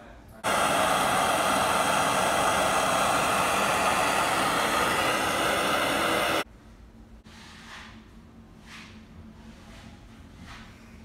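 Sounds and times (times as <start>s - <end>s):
gas torch hissing: 0.4s - 6.5s.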